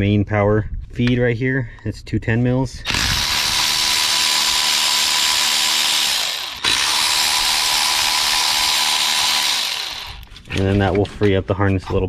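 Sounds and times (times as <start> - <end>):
electric ratchet motor whine: 2.9 - 10.4.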